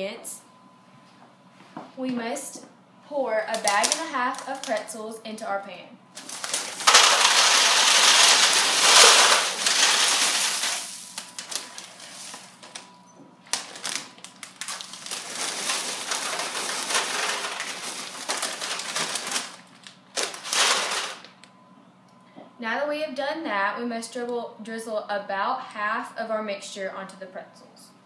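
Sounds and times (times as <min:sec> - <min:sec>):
pretzels pouring into foil pan: 0:03.6 - 0:04.8, 0:06.2 - 0:12.6, 0:13.6 - 0:21.2.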